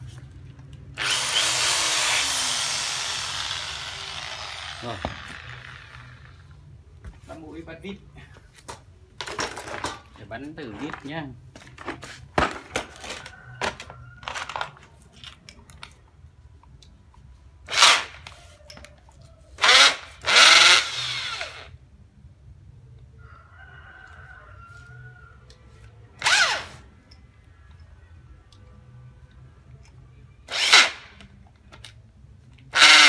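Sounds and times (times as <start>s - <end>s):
corded drill motor spinning: 1.0s - 6.4s, 19.6s - 21.7s, 26.2s - 26.8s, 30.5s - 31.0s, 32.8s - 33.0s.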